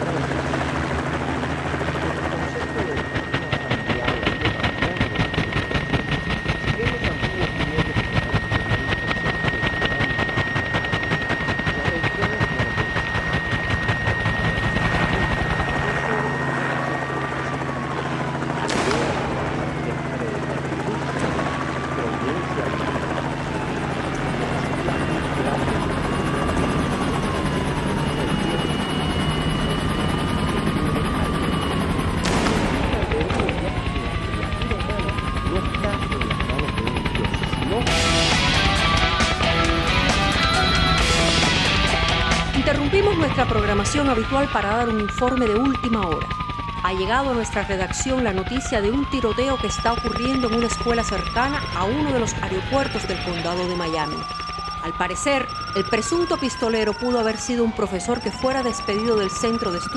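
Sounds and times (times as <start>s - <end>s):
helicopter high whine: 0.0s - 59.9s
helicopter rotor chopping: 0.0s - 59.9s
police sirens wailing: 0.0s - 59.9s
sharp crack: 18.6s - 19.5s, 32.2s - 33.0s.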